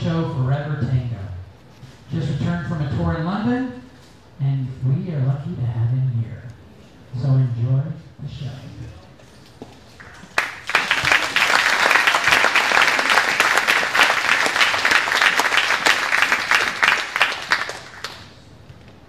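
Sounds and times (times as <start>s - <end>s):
audience applauding: 10.0s - 18.5s.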